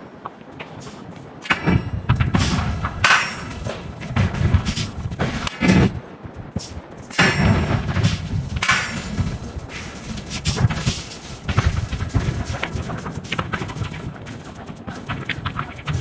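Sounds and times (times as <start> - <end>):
low rumble: 0.5 - 16.0
forging hammer striking hot iron: 1.4 - 6.0, 6.6 - 13.6
metal clanks and knocks: 1.4 - 6.0, 7.0 - 16.0.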